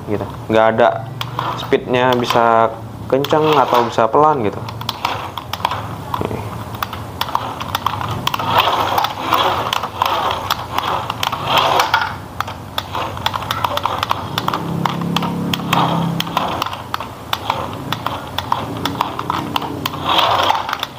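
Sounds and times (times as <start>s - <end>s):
rapid clicks and ticks: 1.2s - 20.9s
toy truck motor and gears: 1.2s - 20.9s
low hum: 4.4s - 20.9s.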